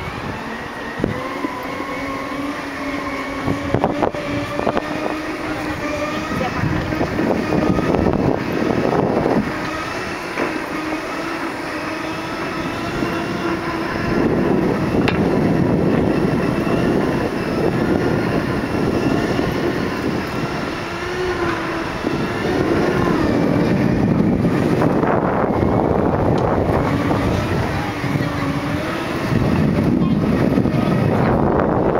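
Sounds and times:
electric drive whining: 0.0s - 31.9s
rumble of wind and wheels: 0.0s - 31.9s.

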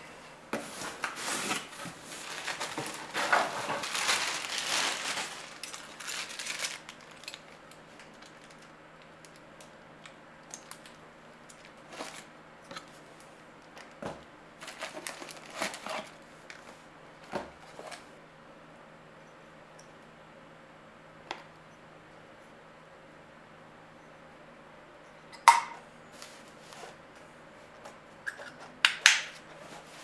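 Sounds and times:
cardboard box rustling: 0.6s - 6.7s
plastic bag crinkling: 1.0s - 9.8s, 14.6s - 16.2s.

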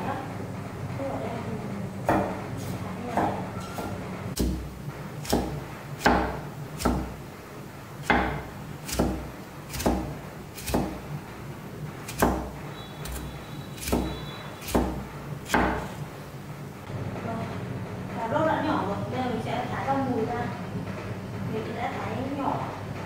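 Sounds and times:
cleaver chopping on wooden board: 4.4s - 7.2s, 8.0s - 11.0s, 12.1s - 16.0s.

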